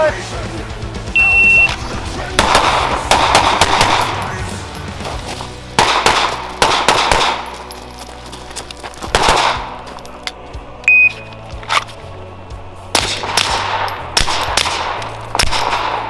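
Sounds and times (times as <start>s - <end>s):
background music with low tones: 0.0s - 16.0s
pistol shots: 2.3s - 4.4s, 5.8s - 7.6s, 9.1s - 9.8s, 12.9s - 16.0s.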